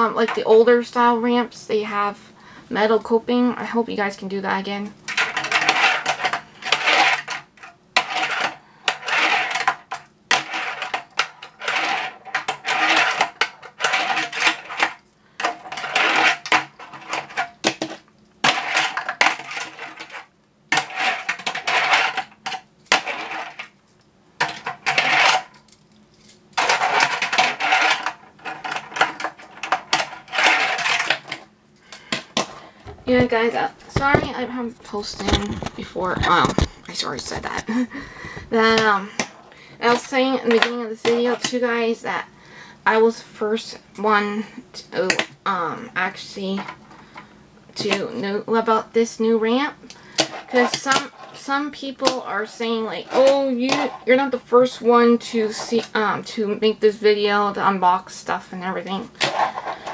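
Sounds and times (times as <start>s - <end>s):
small wheels rolling on plastic ramp: 5.1s - 23.8s, 24.4s - 25.6s, 26.6s - 31.5s.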